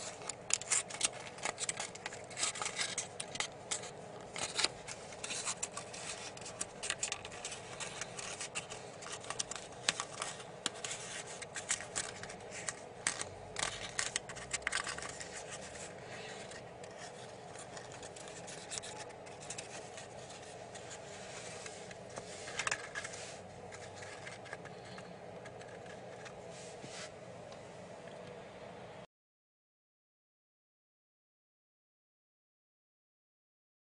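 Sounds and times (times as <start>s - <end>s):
paper crinkling: 0.0s - 27.1s.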